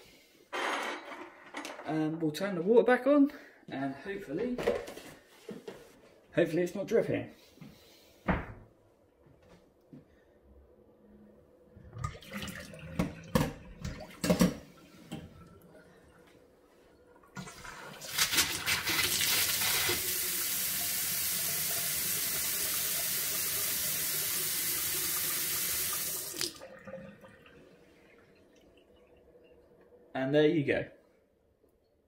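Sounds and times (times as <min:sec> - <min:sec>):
tap water running into metal sink: 0:12.0 - 0:15.6, 0:17.4 - 0:27.6.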